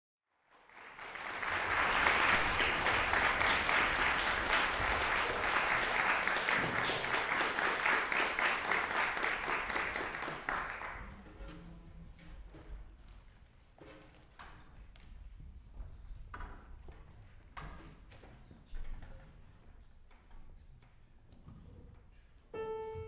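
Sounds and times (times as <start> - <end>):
audience applauding: 0.5 - 11.2.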